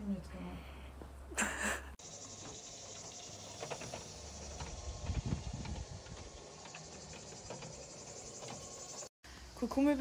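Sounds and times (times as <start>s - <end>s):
cicadas chirring: 2.0s - 9.9s.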